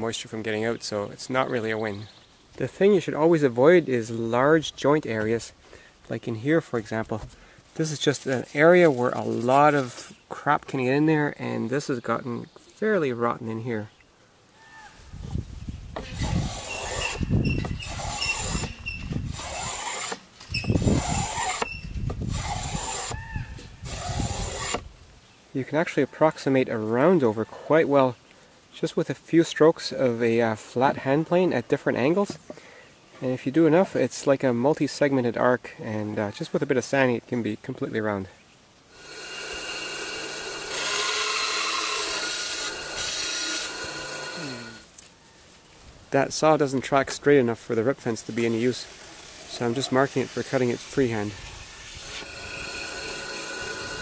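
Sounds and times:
hand plane shaving wood: 0:16.0 - 0:20.2, 0:20.8 - 0:21.7, 0:22.4 - 0:23.2, 0:23.9 - 0:24.8, 0:48.2 - 0:54.0
bandsaw cutting wood: 0:16.0 - 0:23.2, 0:23.8 - 0:24.9, 0:38.9 - 0:44.9, 0:48.2 - 0:54.0
bandsaw motor hum: 0:16.0 - 0:23.2, 0:23.8 - 0:24.8, 0:38.9 - 0:44.9, 0:48.3 - 0:54.0.

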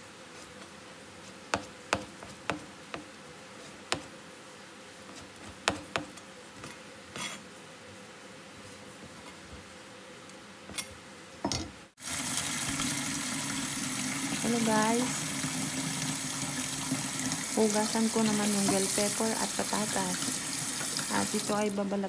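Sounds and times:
faint background hum: 0:00.0 - 0:22.0
knife chopping on plastic board: 0:05.1 - 0:06.2.

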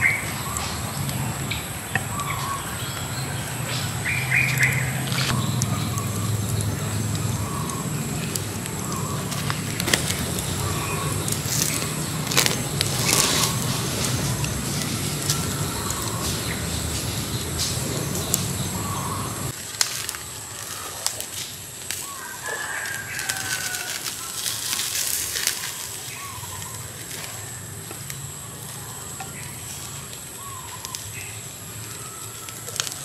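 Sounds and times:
bird chirps: 0:00.0 - 0:19.5
wood fire crackling and popping: 0:00.0 - 0:33.0.

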